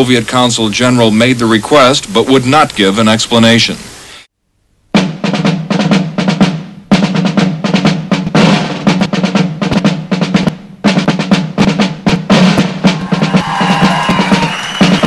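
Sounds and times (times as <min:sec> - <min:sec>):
bass drum: 0:04.9 - 0:15.0
snare drum rolls: 0:04.9 - 0:15.0
marching band playing: 0:05.0 - 0:15.0.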